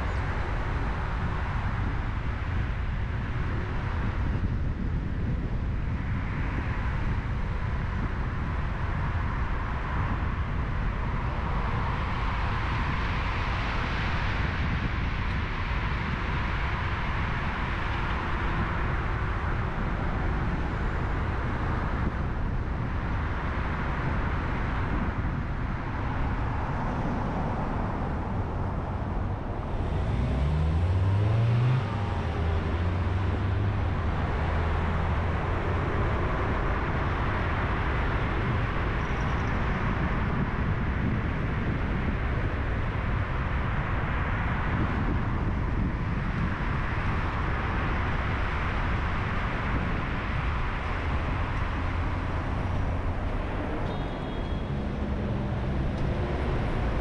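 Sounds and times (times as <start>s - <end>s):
road and tyre noise: 0.0s - 57.0s
car engine accelerating: 29.4s - 37.8s, 51.0s - 57.0s.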